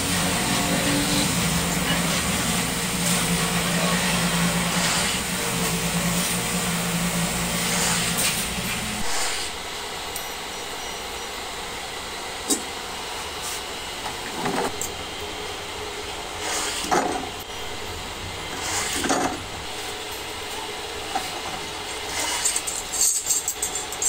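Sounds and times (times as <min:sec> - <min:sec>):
workshop machinery hissing: 0:00.0 - 0:24.0.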